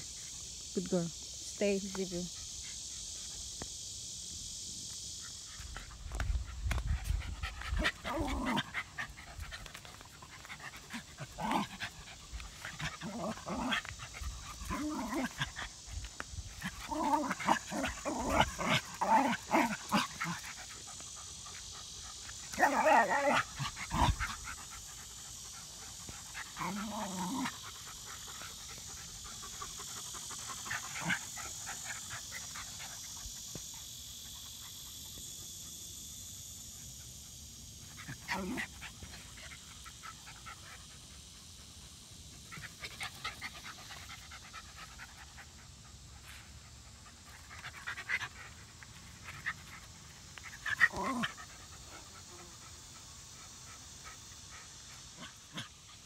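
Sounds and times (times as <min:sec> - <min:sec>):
insects chirring: 0:00.0 - 0:56.0
dogs growling and snarling: 0:05.6 - 0:21.5, 0:22.2 - 0:33.4, 0:37.8 - 0:40.9, 0:46.7 - 0:56.0.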